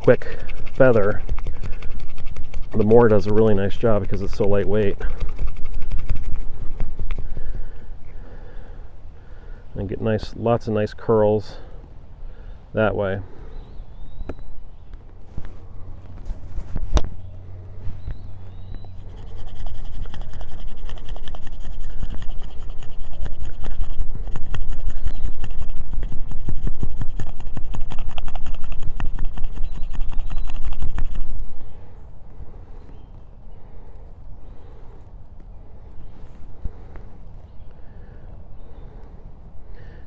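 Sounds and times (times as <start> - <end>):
knife scraping wood: 0.0 - 7.8, 18.8 - 31.5.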